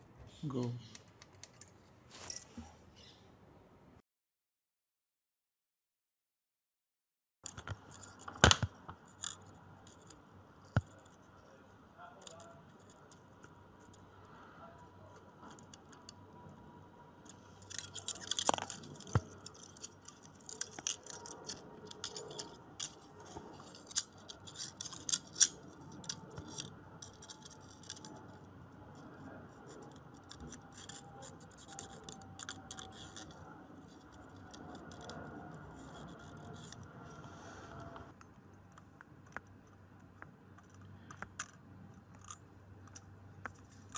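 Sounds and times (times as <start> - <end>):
small metal clicks: 17.2 - 28.5, 29.6 - 36.9, 38.2 - 43.9.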